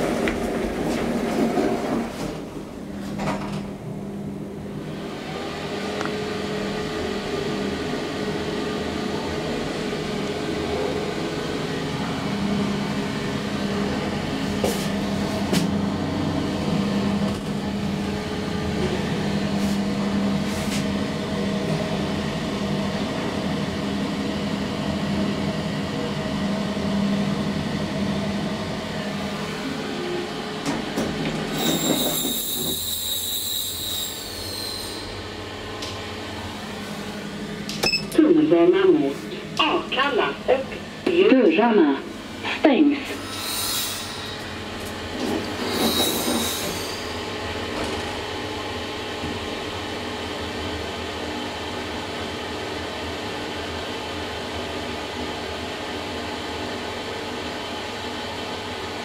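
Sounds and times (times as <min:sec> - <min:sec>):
elevator hum: 0:00.0 - 0:32.8, 0:35.1 - 0:52.2
elevator doors opening: 0:30.6 - 0:32.8.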